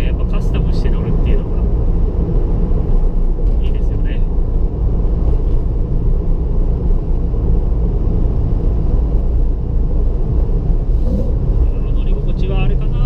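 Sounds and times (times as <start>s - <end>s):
car engine and tyre drone: 0.0s - 13.0s.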